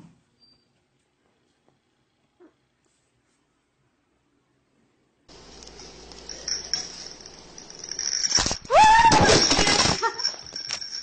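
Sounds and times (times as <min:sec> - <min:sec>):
loud clattering and rattling: 0:05.3 - 0:11.0.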